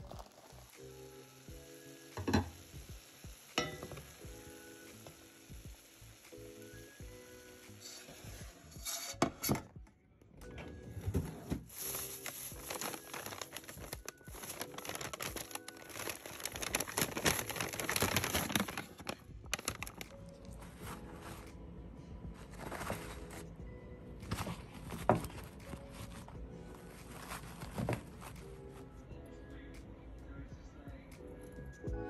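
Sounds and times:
plastic bag crinkling: 0.0s - 0.6s, 11.7s - 20.2s
soft background music: 0.0s - 32.0s.

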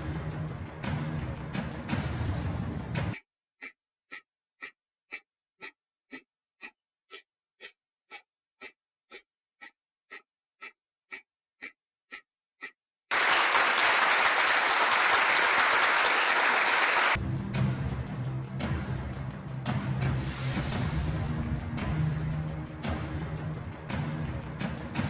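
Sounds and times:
clock-like timer ticks: 0.0s - 13.1s, 18.5s - 25.0s
applause sound effect: 13.1s - 17.2s.

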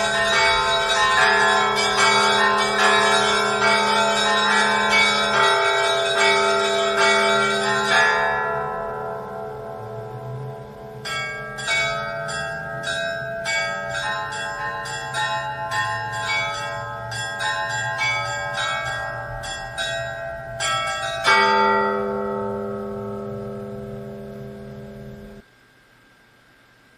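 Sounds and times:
deep church bell ringing: 0.0s - 25.4s.

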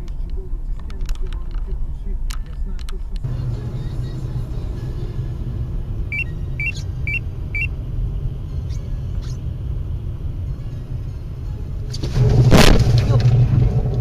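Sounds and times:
car road and engine rumble: 0.0s - 14.0s
short high electronic beeps: 6.1s - 7.7s.

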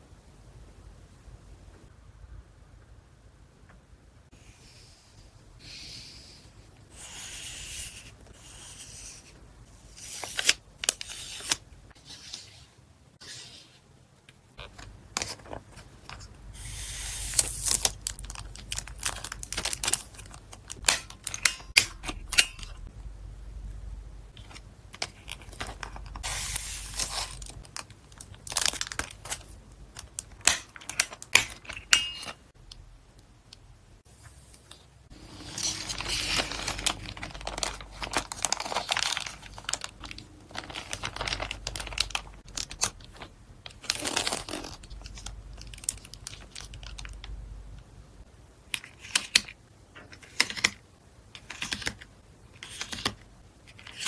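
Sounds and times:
plastic sleeves rustling: 8.3s - 22.9s, 24.3s - 32.5s, 34.1s - 47.4s.

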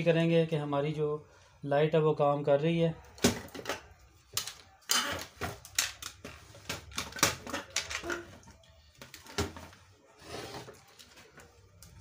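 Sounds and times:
plastic and metal parts clicking: 4.4s - 8.4s.

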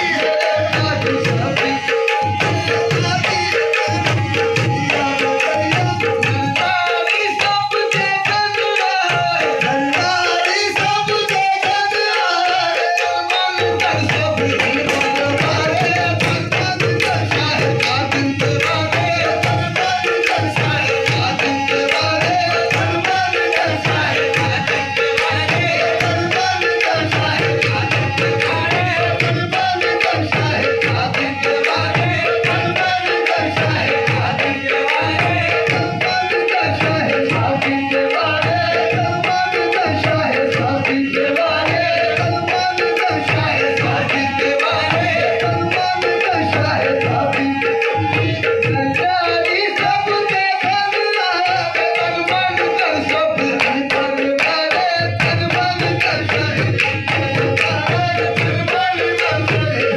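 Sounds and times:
people singing: 0.0s - 59.9s
tabla drumming: 0.0s - 59.9s.

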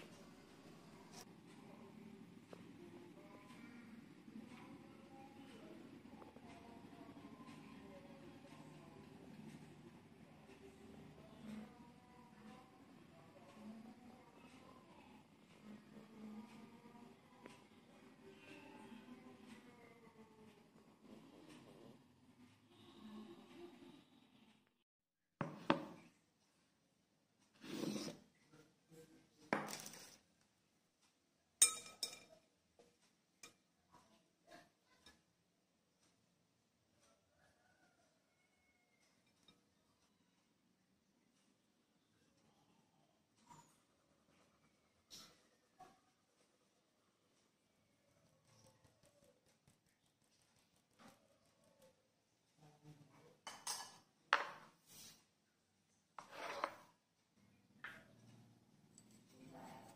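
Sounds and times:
brief scrape: 27.6s - 28.2s
metal sieve clinking on glass bowl: 31.6s - 32.4s
glass sliding on wood: 56.2s - 56.8s.

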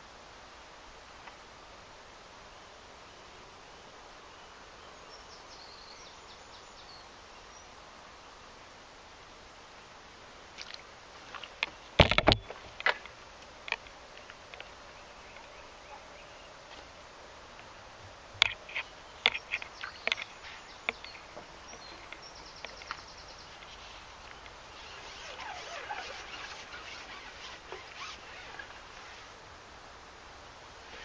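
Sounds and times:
faint outdoor hiss: 0.0s - 31.0s
fishing pole handling noise: 18.4s - 23.0s.

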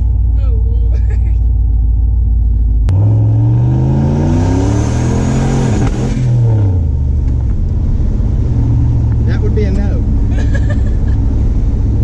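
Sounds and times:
engine revving hard: 2.9s - 6.8s.

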